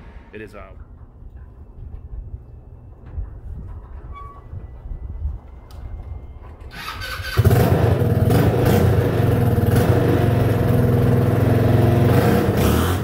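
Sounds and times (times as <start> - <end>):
go-kart engine running: 6.8 - 13.0.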